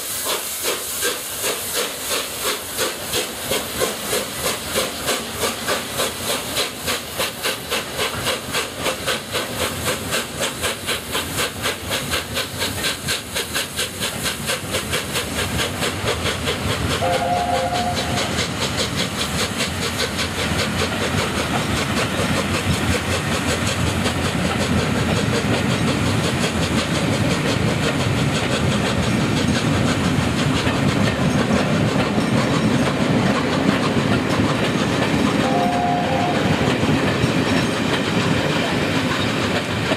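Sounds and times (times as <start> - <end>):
steam hissing: 0.0 - 39.9
steam locomotive chuffing: 0.0 - 39.9
carriage wheels rumbling on rails: 2.8 - 39.9
two-note train whistle: 17.0 - 18.4, 35.4 - 36.6.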